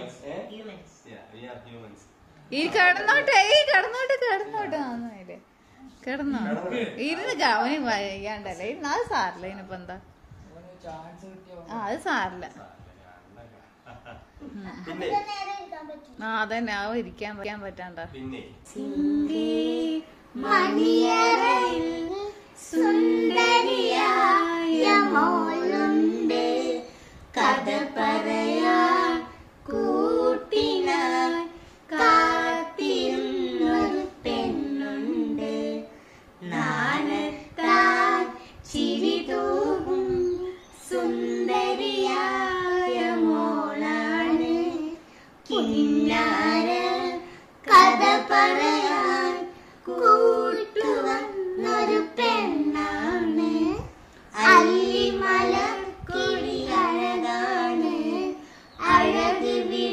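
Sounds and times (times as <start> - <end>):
child singing: 18.6 - 59.9.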